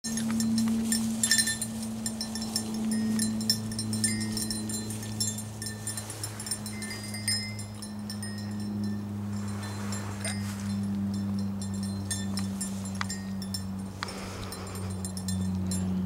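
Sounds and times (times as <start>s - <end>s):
dog moving through tall grass: 0.1s - 8.5s, 9.1s - 11.4s
small bell tinkling: 0.1s - 16.0s
steady low hum: 0.1s - 16.0s.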